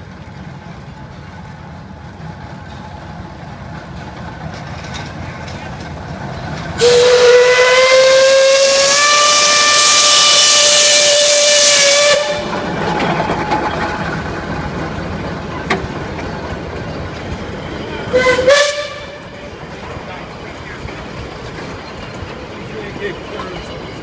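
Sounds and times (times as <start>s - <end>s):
train rolling past: 0.0s - 24.0s
steam locomotive whistle: 6.8s - 12.6s, 18.1s - 19.3s.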